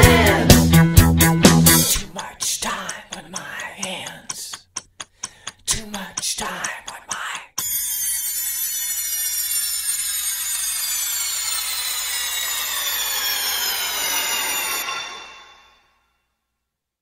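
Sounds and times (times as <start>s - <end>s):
electronic tone gliding downward: 7.6s - 16.0s.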